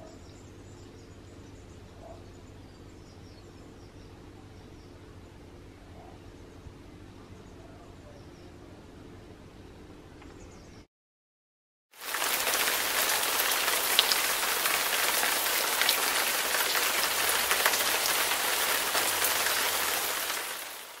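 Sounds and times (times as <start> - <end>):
heavy rain downpour: 12.0 - 21.0.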